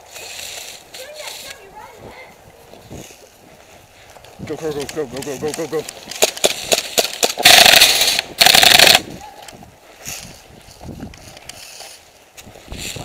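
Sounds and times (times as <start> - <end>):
rustling of movement: 0.0 - 13.0
airsoft gun rapid bursts: 6.4 - 9.1.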